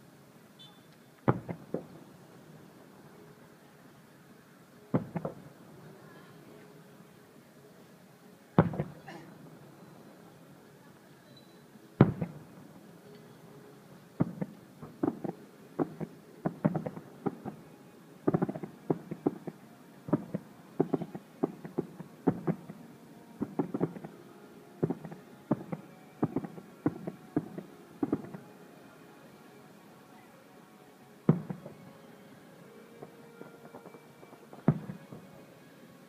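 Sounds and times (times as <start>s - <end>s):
fireworks bursting with sharp bangs: 0.6s - 3.4s, 4.9s - 6.4s, 8.6s - 10.2s, 11.3s - 13.3s, 14.0s - 24.2s, 24.8s - 28.6s, 31.2s - 36.0s.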